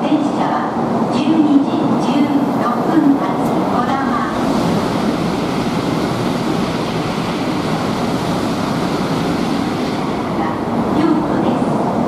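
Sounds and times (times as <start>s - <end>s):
train rushing: 0.0s - 12.0s.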